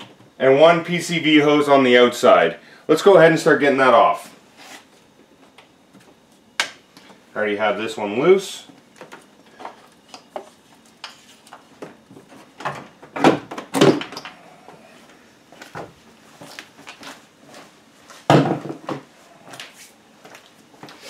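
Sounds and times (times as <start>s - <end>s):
loud thunks: 18.3s - 19.0s.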